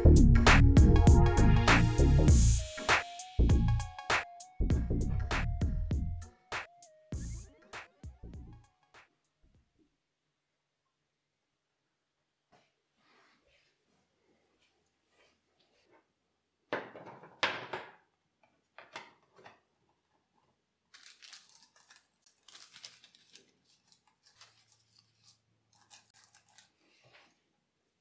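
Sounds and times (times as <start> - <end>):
paper rustling and crinkling: 20.9 - 27.4
paper rasping: 21.4 - 27.4.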